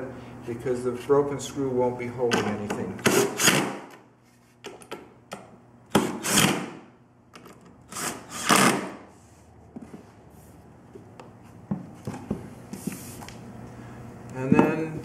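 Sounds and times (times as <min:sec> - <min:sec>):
cordless drill driving screws: 0:06.0 - 0:06.7, 0:07.9 - 0:09.0.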